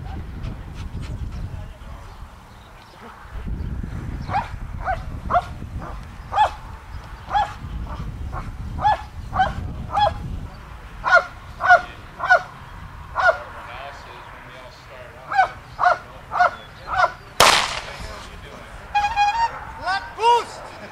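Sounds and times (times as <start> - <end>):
dog barking: 4.3 - 6.6, 7.3 - 10.2, 11.0 - 12.5, 15.3 - 17.1.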